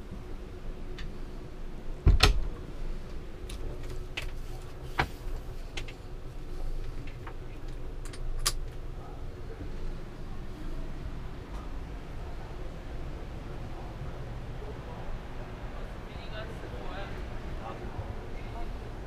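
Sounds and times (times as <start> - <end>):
wooden door thump: 2.0 - 2.5.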